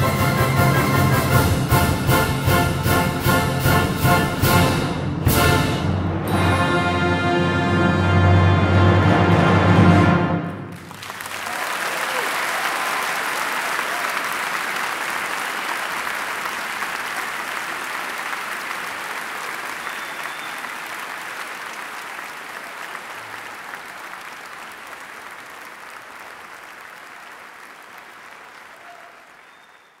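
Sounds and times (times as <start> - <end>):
audience applauding: 10.6 - 30.0.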